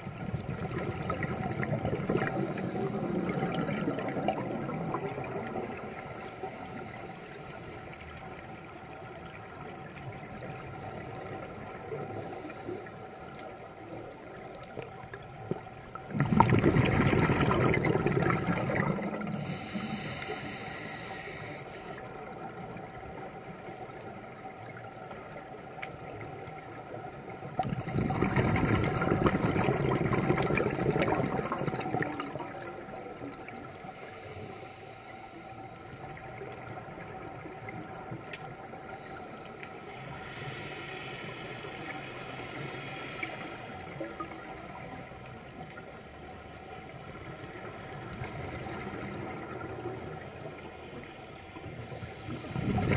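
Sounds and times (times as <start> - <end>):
underwater bubbles rushing: 0.0 - 34.7, 45.5 - 52.9
low underwater hiss: 0.0 - 52.9.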